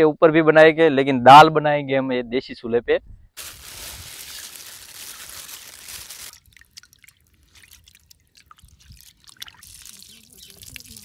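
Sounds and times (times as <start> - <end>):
water sloshing in bowl: 4.3 - 11.0.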